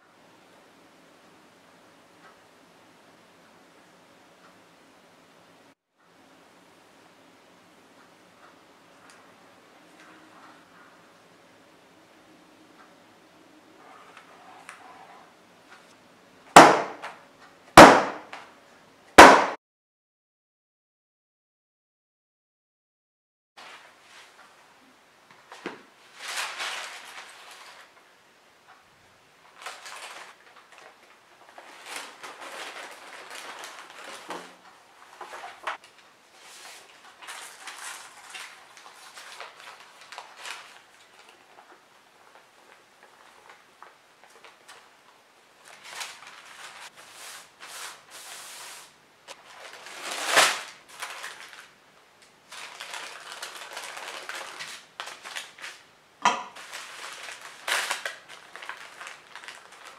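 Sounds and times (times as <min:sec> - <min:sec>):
sharp knock: 0:16.6 - 0:17.0, 0:19.2 - 0:19.6
parchment paper rustling and crinkling: 0:23.6 - 0:28.1, 0:29.4 - 0:55.9, 0:56.5 - 0:59.9.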